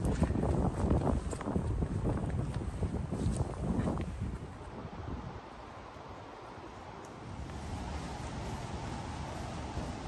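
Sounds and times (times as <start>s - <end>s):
wind buffeting microphone: 0.0s - 5.6s, 7.2s - 10.0s.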